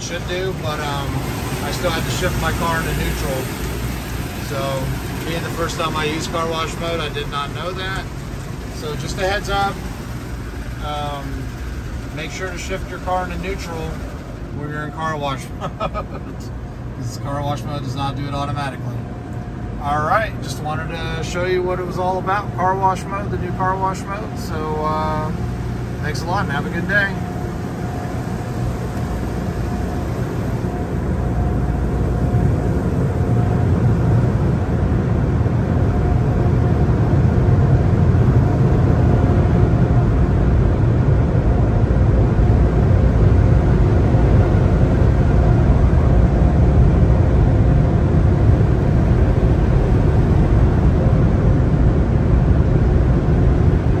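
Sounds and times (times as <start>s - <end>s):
car wash machinery drone: 0.0s - 54.0s.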